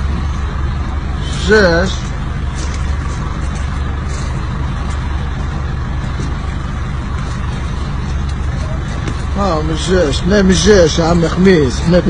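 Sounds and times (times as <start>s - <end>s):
minibus engine idling: 0.0s - 12.0s.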